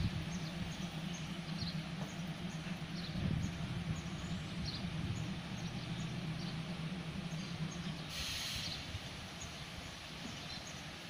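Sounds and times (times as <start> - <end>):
distant diesel locomotive humming: 0.0 - 11.0
air hiss: 8.1 - 9.2.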